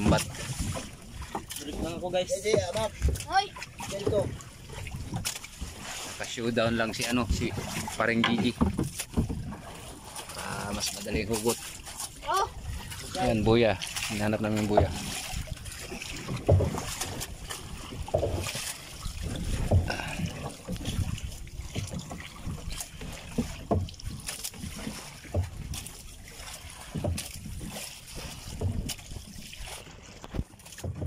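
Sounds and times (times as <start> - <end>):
knocks on wooden boat: 0.0 - 4.4, 7.5 - 9.7, 16.2 - 17.3, 17.9 - 18.6, 19.4 - 21.0, 23.3 - 24.2, 26.8 - 27.4, 28.5 - 29.0, 30.3 - 31.0.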